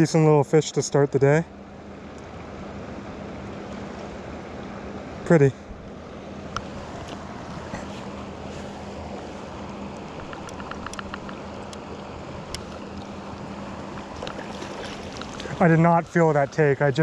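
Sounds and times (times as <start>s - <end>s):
river current flowing: 0.0s - 17.0s
faint ticks: 9.9s - 11.9s.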